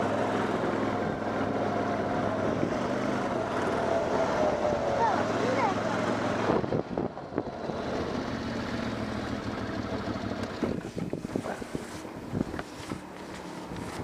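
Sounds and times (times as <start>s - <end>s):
atv engine running: 0.0s - 14.0s
wind on microphone: 6.4s - 7.8s, 10.6s - 13.0s
gravel ticking around wheels: 6.8s - 14.0s.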